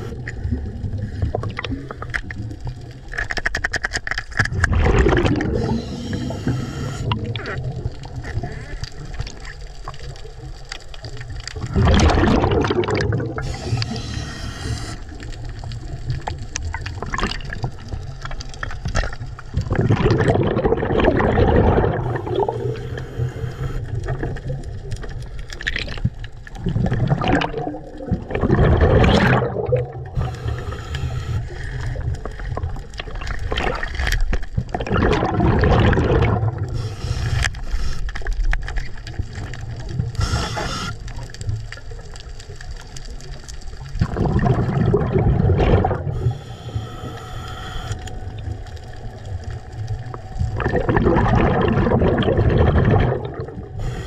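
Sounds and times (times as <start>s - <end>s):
low underwater rumble: 0.0s - 3.2s, 4.4s - 54.0s
underwater rushing and gurgling: 0.0s - 54.0s.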